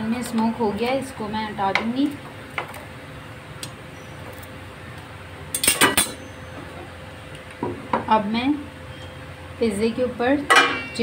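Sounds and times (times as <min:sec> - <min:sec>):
metal cookware clanking: 0:05.5 - 0:06.2, 0:10.5 - 0:11.0.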